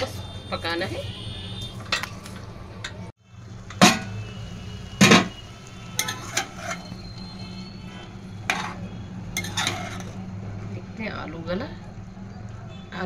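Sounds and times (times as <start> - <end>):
ladle scraping metal pot: 5.0 - 10.2.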